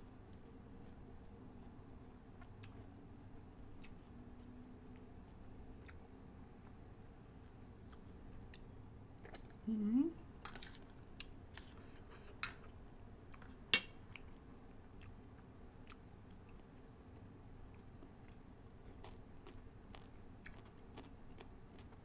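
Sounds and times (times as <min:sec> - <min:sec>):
close chewing and wet smacking: 0:01.6 - 0:02.9, 0:03.7 - 0:06.8, 0:07.8 - 0:09.6, 0:12.6 - 0:14.4, 0:15.0 - 0:22.0.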